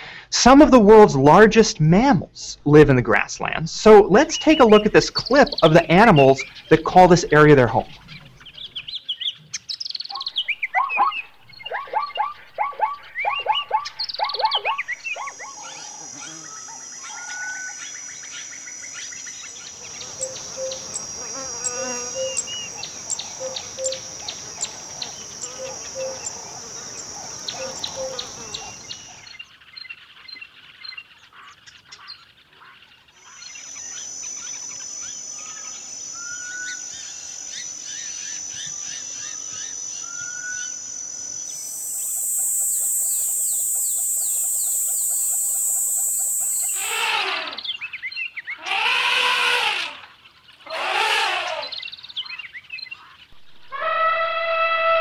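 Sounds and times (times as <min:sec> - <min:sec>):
bird chirps: 0:03.9 - 0:48.6, 0:51.4 - 0:55.0
high insect buzzing: 0:14.0 - 0:29.2, 0:33.2 - 0:47.8, 0:48.6 - 0:50.1, 0:50.7 - 0:51.9
elephants trumpeting: 0:46.6 - 0:47.8, 0:48.6 - 0:50.1, 0:50.7 - 0:51.8, 0:53.6 - 0:55.0.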